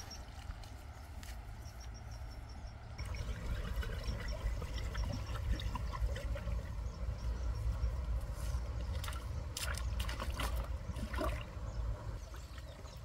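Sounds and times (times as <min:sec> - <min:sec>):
water pouring and splashing: 0:03.0 - 0:06.8, 0:08.8 - 0:11.6.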